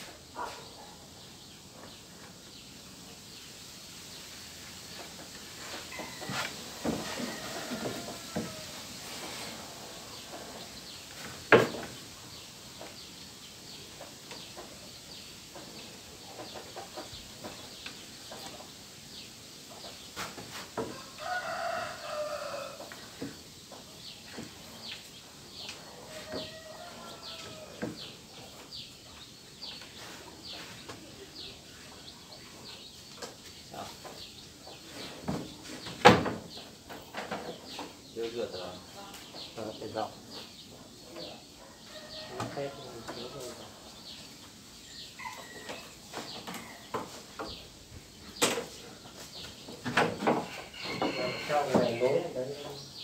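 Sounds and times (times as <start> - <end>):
rooster crowing: 5.9 - 9.3, 20.9 - 23.0, 25.9 - 28.0, 41.7 - 43.6, 44.9 - 46.9, 50.4 - 52.3
chicken calls: 12.0 - 35.8, 50.4 - 52.9.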